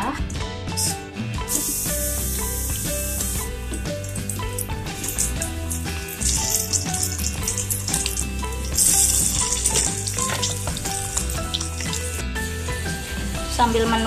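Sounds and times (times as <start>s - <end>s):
chicken deep-frying in oil: 4.0s - 13.6s.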